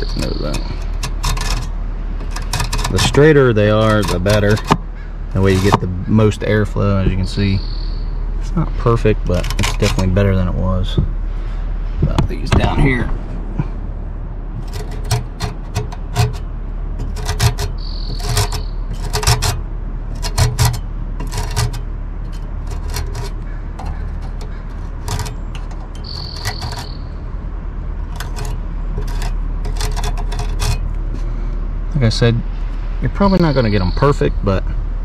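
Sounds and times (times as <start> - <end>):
fin comb scraping metal fins: 0.0 - 7.5, 8.8 - 10.5, 14.5 - 27.2, 28.0 - 32.3.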